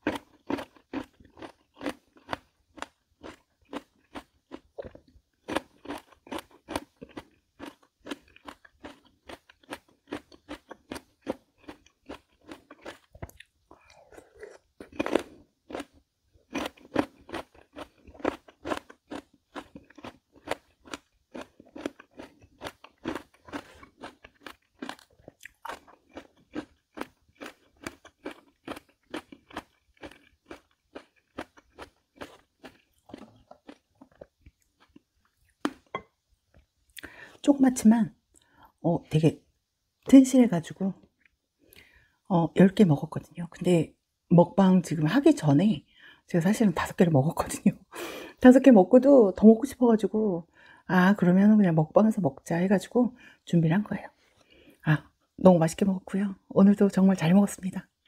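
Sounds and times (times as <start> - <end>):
person chewing crisp melon: 0.0 - 37.4.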